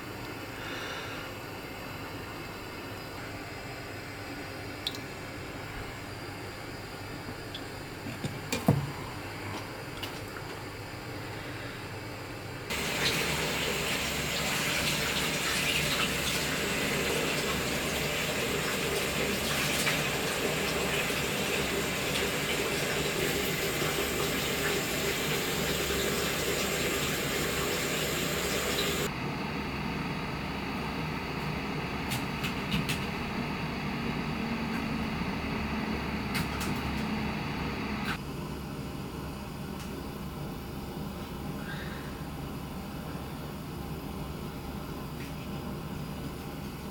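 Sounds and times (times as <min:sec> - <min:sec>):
quiet background hum: 0:00.0 - 0:36.8, 0:38.1 - 0:46.9
tap water running: 0:07.5 - 0:08.9, 0:12.7 - 0:29.1.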